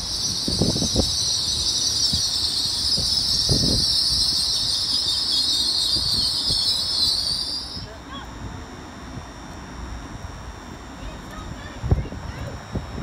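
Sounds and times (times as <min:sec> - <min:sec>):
train brakes squealing: 0:00.0 - 0:07.9.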